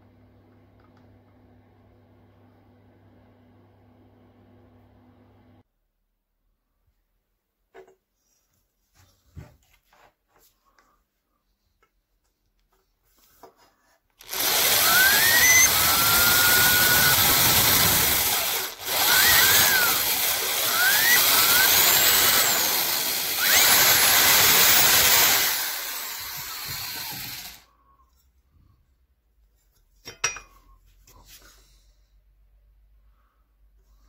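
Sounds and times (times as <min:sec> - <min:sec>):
drill bit squealing: 0:14.2 - 0:27.6
power drill boring through steel: 0:14.2 - 0:27.7.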